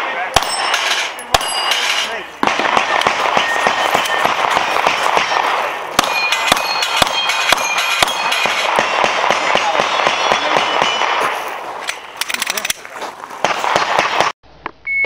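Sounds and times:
pistol shots: 0.0 - 12.7, 13.4 - 14.3
steel plates clanging: 0.4 - 2.3, 6.0 - 8.8.

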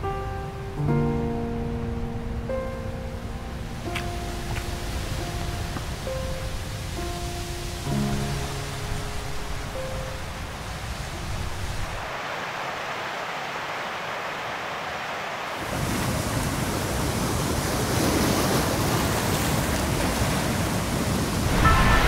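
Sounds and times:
distant flowing water: 0.0 - 22.0
wind: 0.0 - 22.0
waves breaking on rocky shore: 3.8 - 9.4, 10.2 - 22.0.

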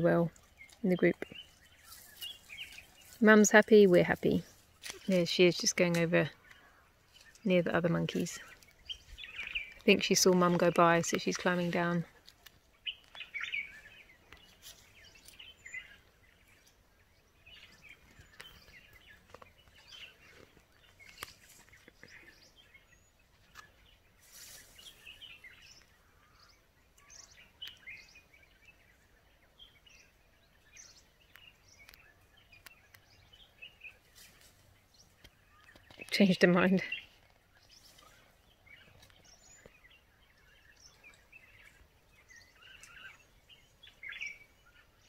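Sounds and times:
faint bird chirps: 12.8 - 45.0.

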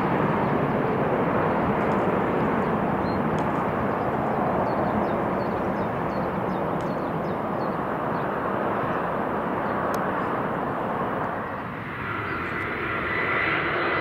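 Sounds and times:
distant jet engines roaring: 0.0 - 14.0
small birds chirping: 1.8 - 10.4, 11.4 - 12.8.

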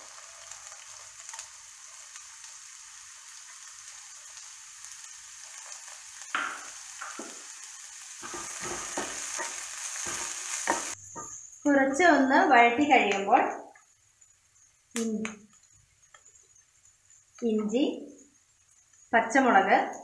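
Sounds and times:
onion sizzling in oil: 0.0 - 20.0
spatula knocking and scraping pan: 6.3 - 7.5, 8.2 - 11.4.

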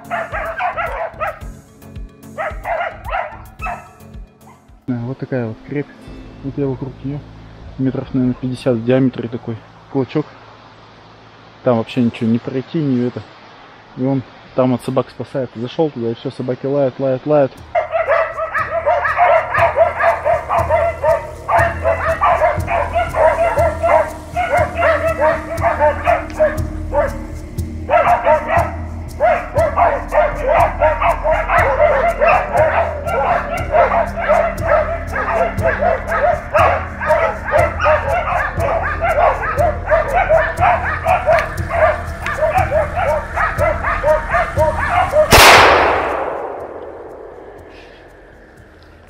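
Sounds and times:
dogs barking rapidly: 0.0 - 1.6, 2.3 - 4.6, 17.6 - 47.8.

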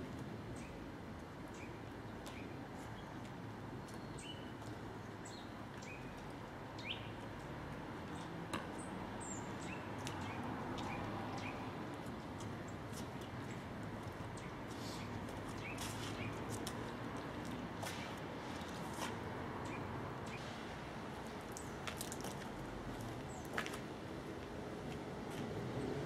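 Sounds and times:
small birds chirping: 6.8 - 7.2, 8.1 - 11.7, 12.3 - 16.6.

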